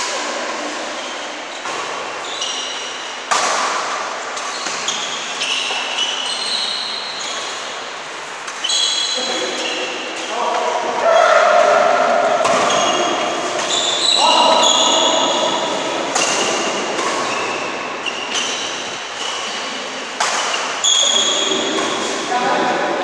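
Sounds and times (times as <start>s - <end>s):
sneakers squeaking on court: 1.0s - 3.7s, 4.3s - 7.9s, 8.5s - 10.3s, 12.4s - 22.2s
rackets striking shuttlecock: 1.6s - 6.6s, 12.3s - 22.2s.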